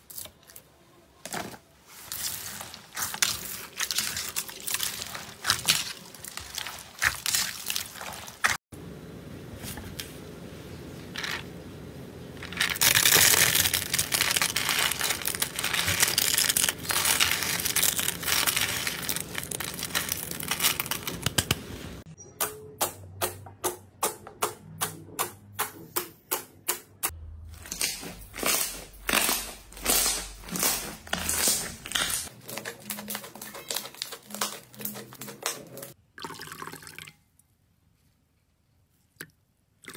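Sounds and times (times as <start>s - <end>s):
wet slime squishing: 1.3s - 8.6s, 12.5s - 21.5s, 27.5s - 36.0s
dry flakes crunching: 1.8s - 8.6s, 12.4s - 21.4s, 27.5s - 36.0s.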